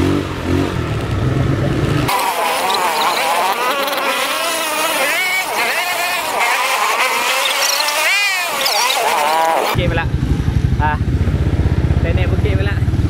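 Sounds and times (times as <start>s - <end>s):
deep low rumble: 0.0s - 2.1s, 9.8s - 13.0s
quad bike engine revving: 0.0s - 13.0s.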